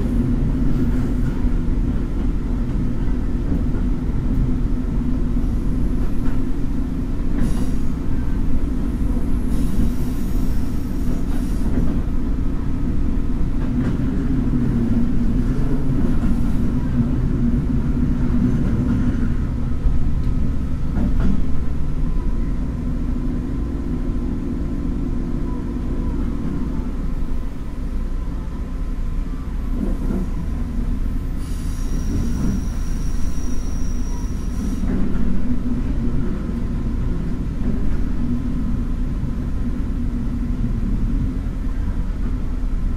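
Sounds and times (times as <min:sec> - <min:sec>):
diesel railcar rumbling: 0:00.0 - 0:42.9
high wheel squeal: 0:31.3 - 0:34.9.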